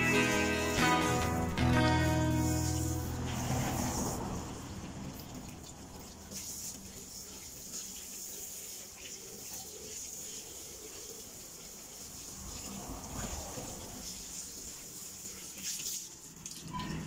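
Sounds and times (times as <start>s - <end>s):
hose water splashing: 0.0s - 17.0s.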